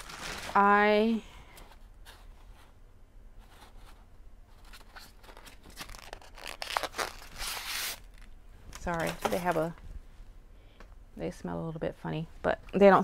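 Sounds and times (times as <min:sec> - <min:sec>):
packaging crinkling and tearing: 0:00.0 - 0:00.6, 0:04.8 - 0:09.6.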